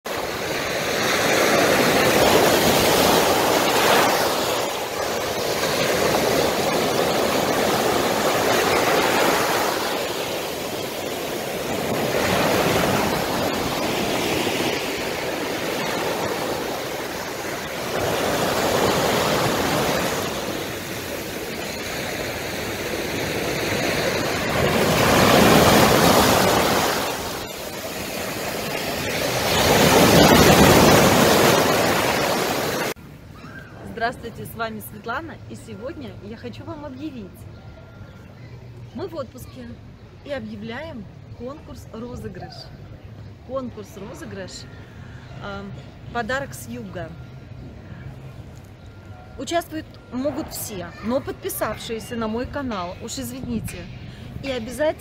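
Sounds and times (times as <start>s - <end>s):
sea surf breaking on shore: 0.1s - 33.0s.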